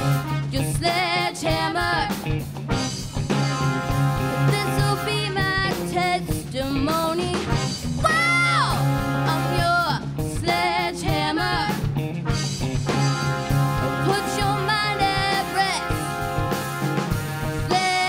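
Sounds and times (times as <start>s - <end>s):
drum kit: 0.0s - 18.0s
electric bass: 0.0s - 18.0s
electric guitar: 0.0s - 18.0s
person singing: 17.7s - 18.0s.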